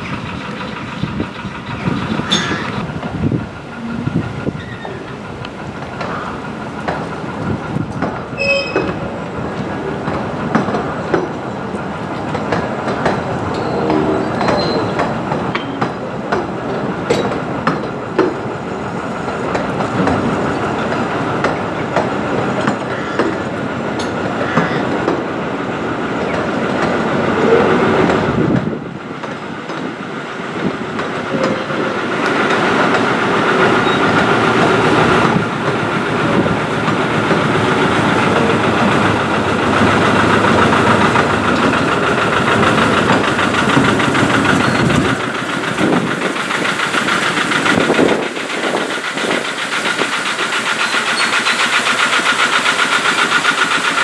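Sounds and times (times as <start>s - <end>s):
train wheels clicking over rail joints: 0.0s - 54.0s
faint wheel squeal: 8.4s - 9.0s.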